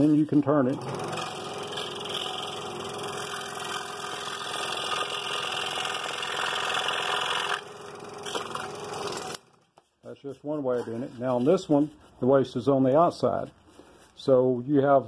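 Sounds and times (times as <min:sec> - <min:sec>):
scroll saw cutting wood: 0:00.0 - 0:09.4.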